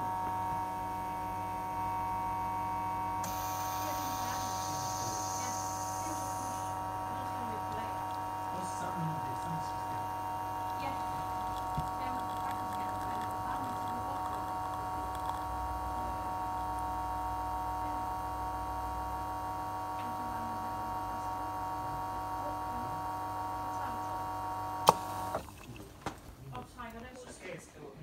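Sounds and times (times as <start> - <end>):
espresso machine pump humming: 0.0 - 26.3.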